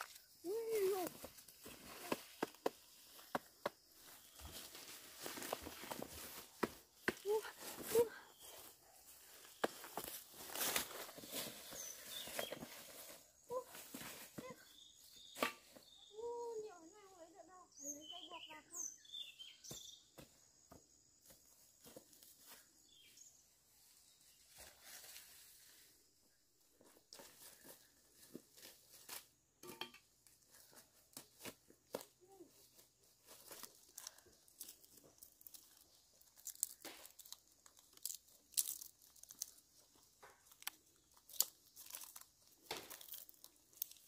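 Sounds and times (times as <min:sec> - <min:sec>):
dry leaves crackling underfoot: 0:03.8 - 0:08.6, 0:09.2 - 0:14.4, 0:31.3 - 0:44.0.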